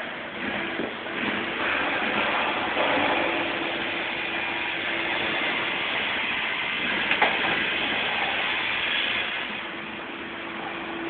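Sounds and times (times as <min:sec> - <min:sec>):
mechanical hiss: 0:00.0 - 0:11.0.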